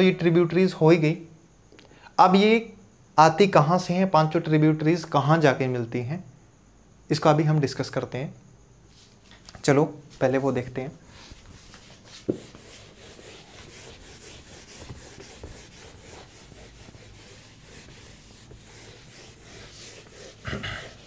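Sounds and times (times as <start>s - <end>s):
duster rubbing whiteboard: 11.1s - 21.0s.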